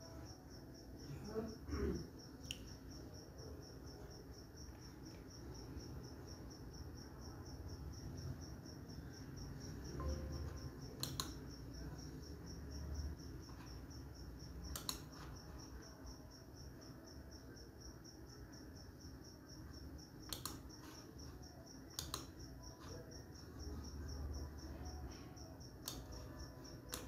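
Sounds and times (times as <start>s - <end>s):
cricket chirping: 0.0s - 27.0s
faint low room hum: 0.0s - 27.0s
sharp clicks: 11.0s - 11.4s, 14.7s - 15.1s, 20.3s - 20.7s, 21.9s - 22.4s.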